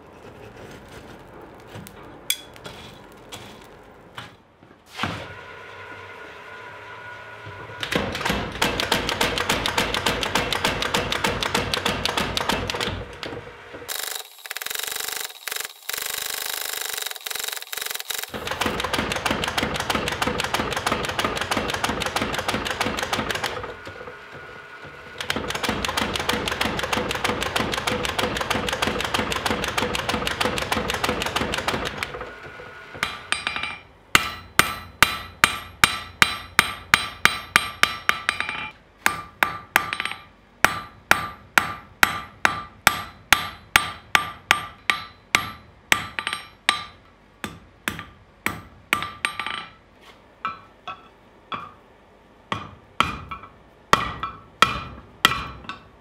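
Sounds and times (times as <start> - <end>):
power hammer pounding steel: 7.8 - 32.2, 32.9 - 49.6, 52.5 - 55.8.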